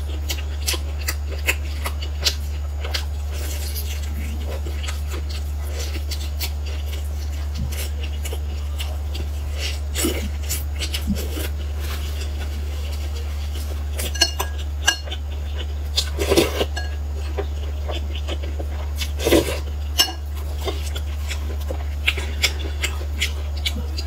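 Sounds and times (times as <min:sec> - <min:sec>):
steady low hum: 0:00.0 - 0:24.0
metal spoon clinking glass bowl: 0:14.1 - 0:15.0.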